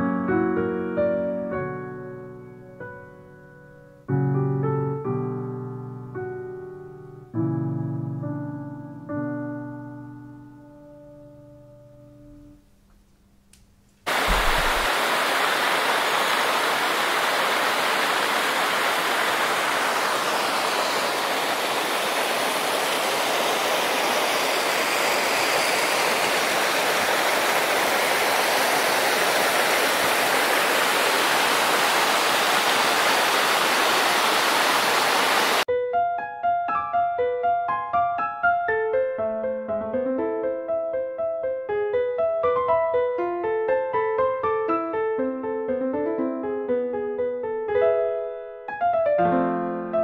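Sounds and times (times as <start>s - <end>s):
stream rushing over rocks: 14.1s - 35.7s.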